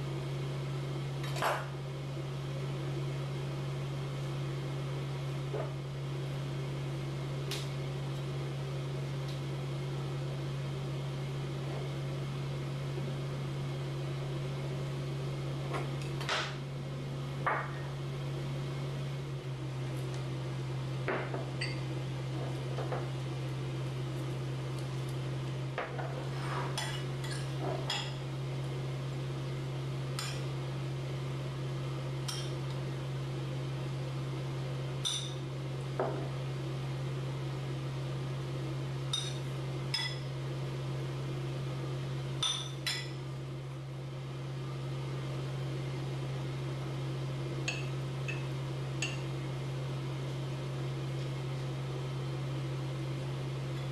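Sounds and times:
steady low hum: 0.0 - 53.9.

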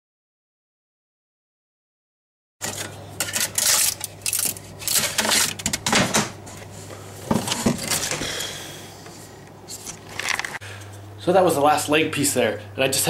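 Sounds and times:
steady low hum: 2.6 - 13.0.

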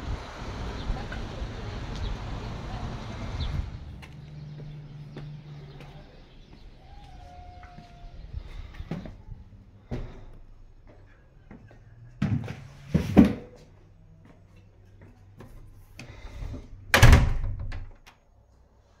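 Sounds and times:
door thump with rattle: 16.9 - 18.0.

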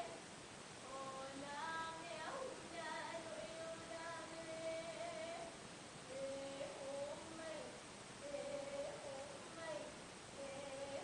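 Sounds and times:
woman singing long notes: 0.8 - 11.0.

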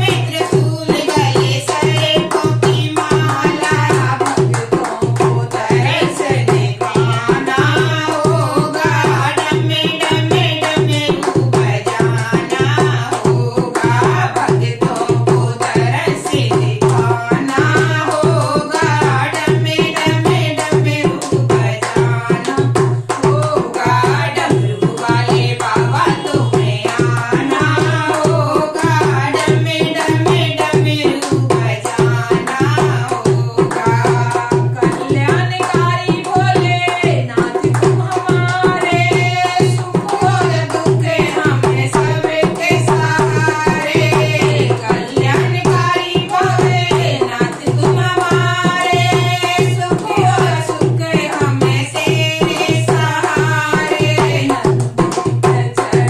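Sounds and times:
hand drum beat: 0.0 - 56.0
women singing devotional song: 0.0 - 56.0
hand claps: 28.6 - 44.6.

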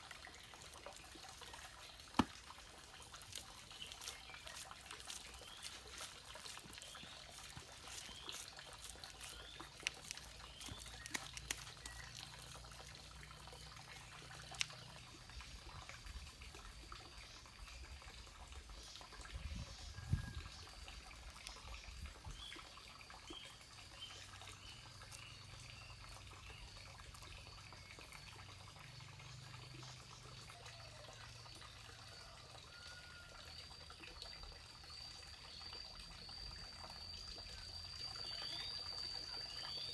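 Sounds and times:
water dribbling: 0.0 - 39.9
hands patting wet clay: 1.5 - 15.0
thin high chirping: 2.8 - 15.0.

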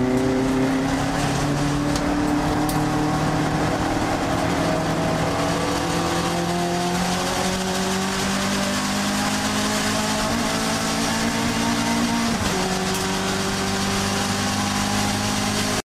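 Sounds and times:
car engine at high revs: 0.0 - 15.8
wind and road noise: 0.0 - 15.8.

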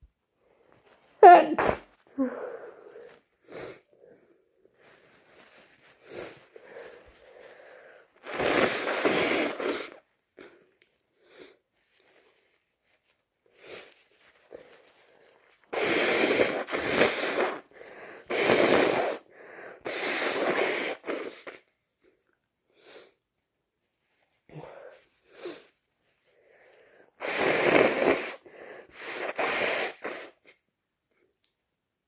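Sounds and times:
person blowing nose: 1.2 - 3.9, 4.8 - 10.6, 13.5 - 21.7, 25.2 - 25.8, 27.2 - 30.7.

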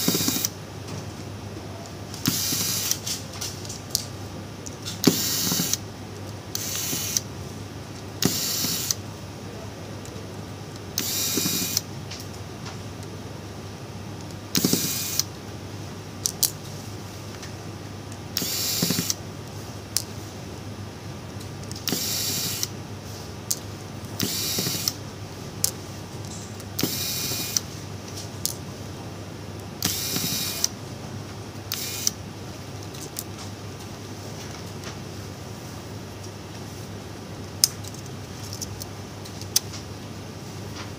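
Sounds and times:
electric screwdriver spinning: 0.0 - 0.5, 5.1 - 5.8, 8.2 - 9.0, 11.0 - 11.8, 18.4 - 19.2, 24.2 - 25.0.

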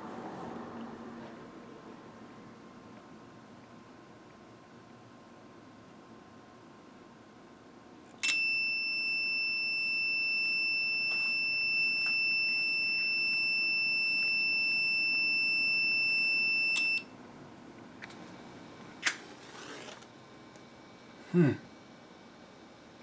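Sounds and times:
high-pitched smoke alarm tone: 8.2 - 17.1.

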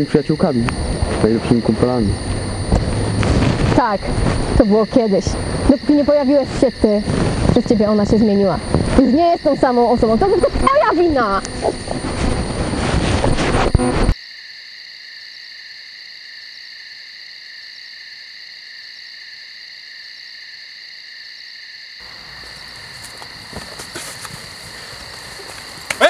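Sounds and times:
crickets chirping: 0.0 - 26.0
loud burst of noise: 0.5 - 4.6, 7.0 - 7.6.

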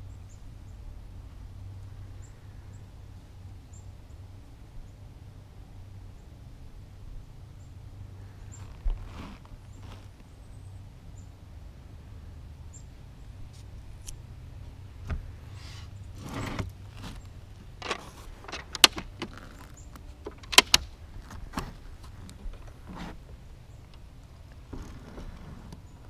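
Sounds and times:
low steady hum: 0.0 - 26.0
sharp clicks and knocks: 17.7 - 23.1.

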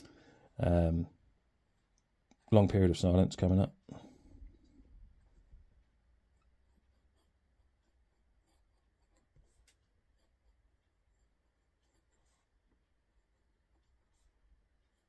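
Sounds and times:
fountain pen scratching on paper: 6.3 - 12.6, 13.8 - 15.0.

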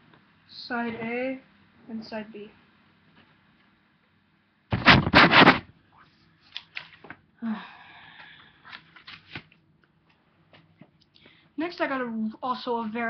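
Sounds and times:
record sleeve rustling knocks: 4.7 - 5.6.

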